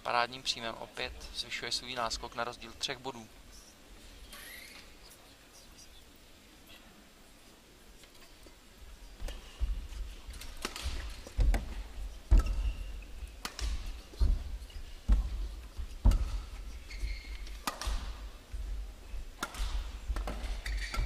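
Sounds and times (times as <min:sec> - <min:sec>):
footsteps thudding on court: 0:09.2 - 0:20.7
racket striking shuttlecock: 0:10.4 - 0:14.4, 0:15.1 - 0:18.2, 0:19.4 - 0:21.0.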